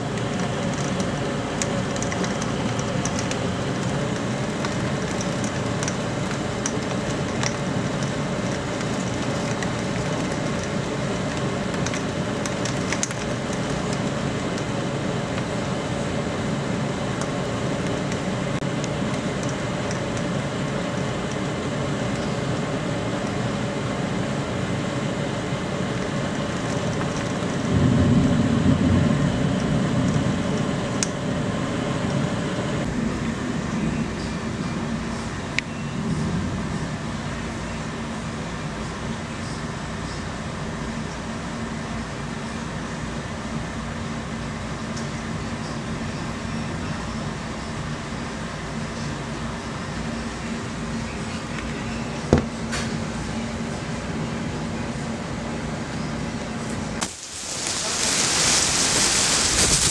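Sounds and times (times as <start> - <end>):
rain against a window: 0.0 - 18.1, 25.2 - 32.5, 57.0 - 59.9
wind: 0.0 - 59.9.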